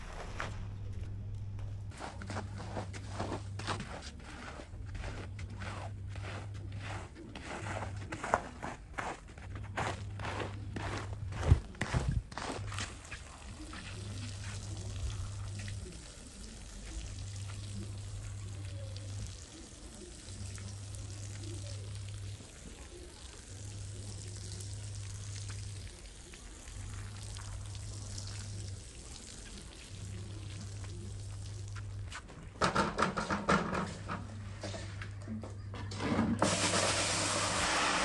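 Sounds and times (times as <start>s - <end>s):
water pouring onto wet rug: 12.7s - 32.3s, 36.4s - 38.0s.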